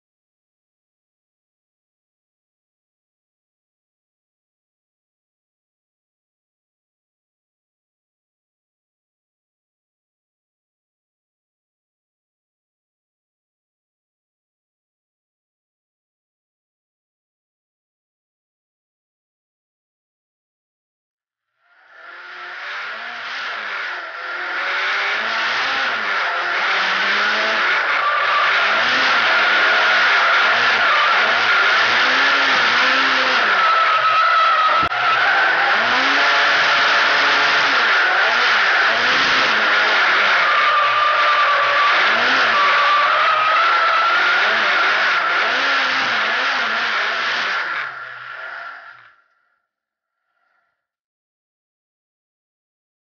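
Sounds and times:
car engine revving: 21.8s - 49.1s
tyres squealing: 27.4s - 45.6s.

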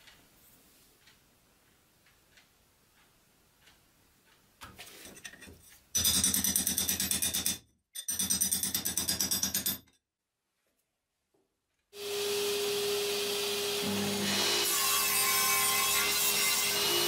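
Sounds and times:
metal-on-metal scraping: 4.7s - 6.1s.

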